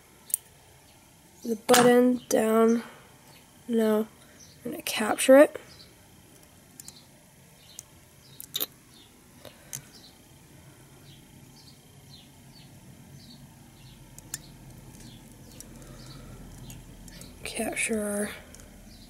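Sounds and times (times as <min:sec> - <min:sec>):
small clicks and taps: 0:06.3 - 0:07.0, 0:14.1 - 0:17.4.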